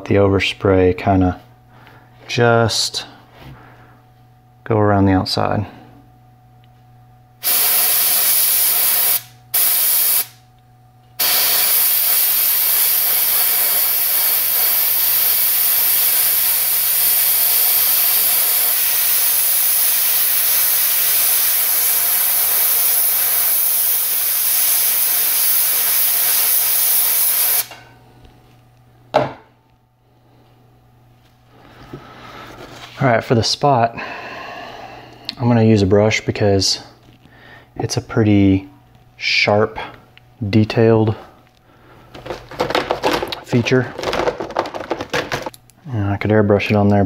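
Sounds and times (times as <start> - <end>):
airbrush spraying hiss: 7.4 - 10.4, 11.2 - 27.7.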